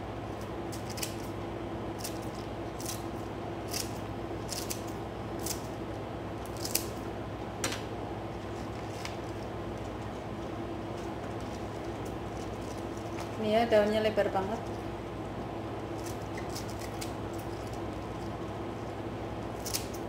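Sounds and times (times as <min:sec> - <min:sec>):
steady low hum: 0:00.0 - 0:20.0
scissors snipping lettuce leaves: 0:00.4 - 0:01.4, 0:02.0 - 0:05.8, 0:06.4 - 0:07.0, 0:15.9 - 0:18.9, 0:19.5 - 0:20.0.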